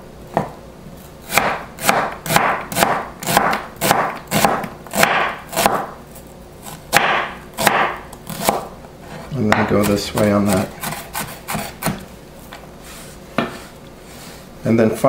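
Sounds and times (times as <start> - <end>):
knife chopping onion on board: 1.2 - 6.0, 6.6 - 12.1.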